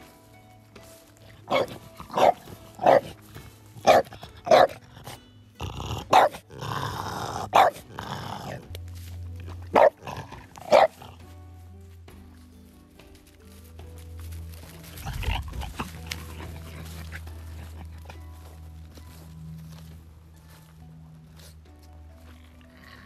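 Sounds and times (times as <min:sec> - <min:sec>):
dog barking: 0:01.5 - 0:03.2, 0:03.8 - 0:04.8, 0:06.1 - 0:06.4, 0:07.5 - 0:07.9, 0:09.7 - 0:10.0, 0:10.6 - 0:11.0.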